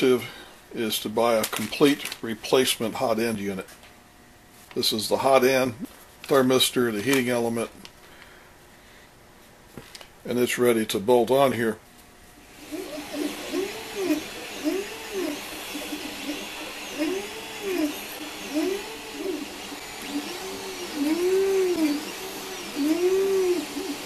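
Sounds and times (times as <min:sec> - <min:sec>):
stepper motors whining: 0:12.5 - 0:24.0.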